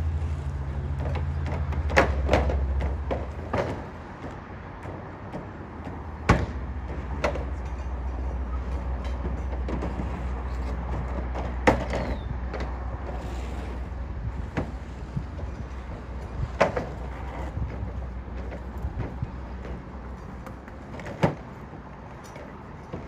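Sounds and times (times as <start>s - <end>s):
steady low rumble: 12.2s - 20.9s.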